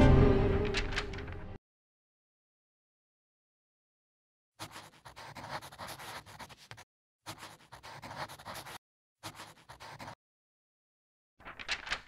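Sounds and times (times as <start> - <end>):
marker pen scratching: 4.6 - 10.2.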